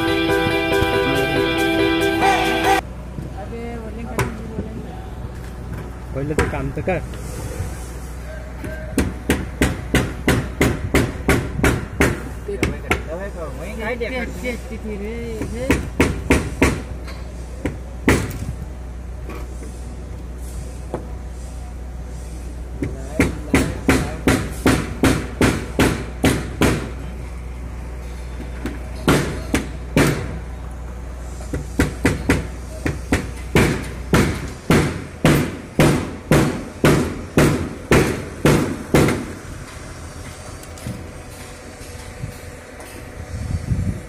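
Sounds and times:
hammer blows: 0:23.2 - 0:27.0, 0:31.4 - 0:39.4.

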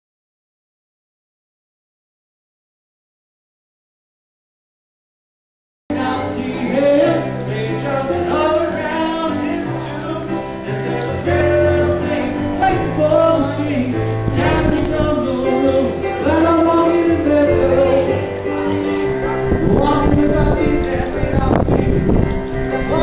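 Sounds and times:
electronic keyboard playing: 0:05.9 - 0:23.0.

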